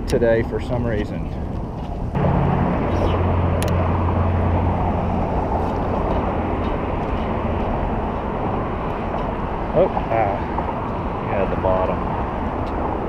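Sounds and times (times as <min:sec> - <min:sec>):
low hum: 0:00.0 - 0:13.0
road traffic rumble: 0:00.0 - 0:13.0.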